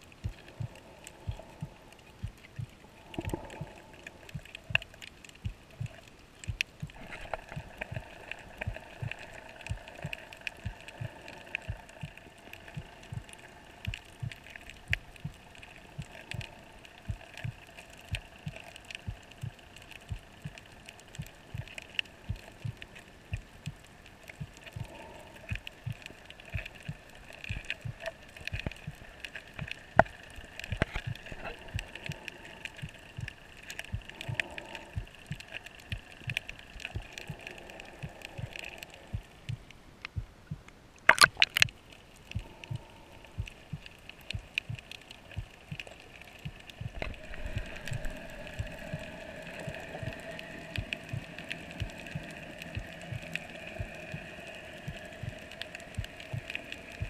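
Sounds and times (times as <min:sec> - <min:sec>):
faint underwater hum: 0:00.0 - 0:57.0
underwater clicks and crackles: 0:00.0 - 0:57.0.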